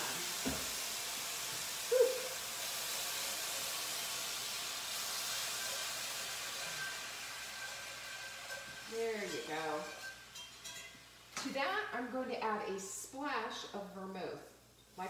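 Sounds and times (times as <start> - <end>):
broth sizzling in a skillet: 0.0 - 11.9
whisk stirring: 6.5 - 10.9.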